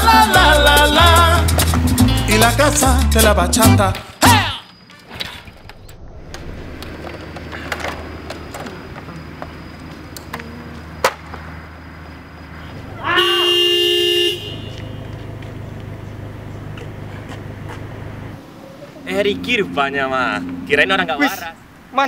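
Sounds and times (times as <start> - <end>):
car horn toot: 13.0 - 15.3
car engine running: 14.8 - 18.4.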